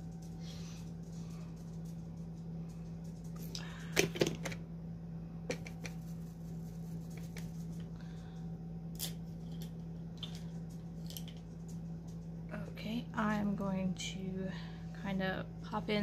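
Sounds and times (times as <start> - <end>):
steady low hum: 0.0 - 16.0
small objects clicking and tapping: 9.0 - 12.2.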